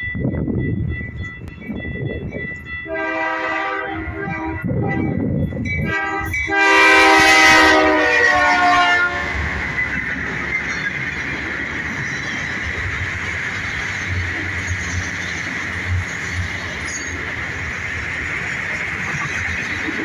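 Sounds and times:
crossing bell ringing: 0:00.0 - 0:20.0
locomotive engine and wheel noise: 0:00.0 - 0:20.0
locomotive air horn blasts: 0:02.9 - 0:05.2, 0:05.8 - 0:09.6.

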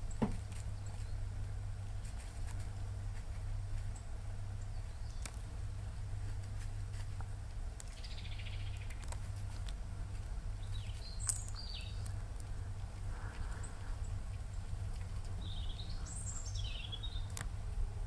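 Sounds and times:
dry leaves rustling: 0:00.0 - 0:17.8
steady low rumble: 0:00.0 - 0:18.0
bird chirps: 0:07.9 - 0:09.0, 0:10.6 - 0:12.1, 0:15.3 - 0:17.4
bird trill: 0:10.6 - 0:12.0, 0:15.4 - 0:17.3.

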